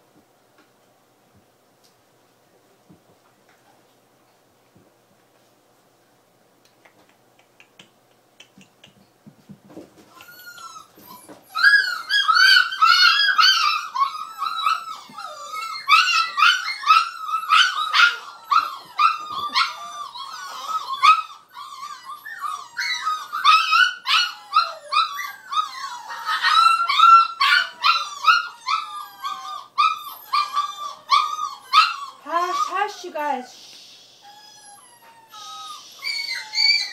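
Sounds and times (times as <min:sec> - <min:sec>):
puppy whining and yipping: 0:10.1 - 0:32.8, 0:34.2 - 0:36.9.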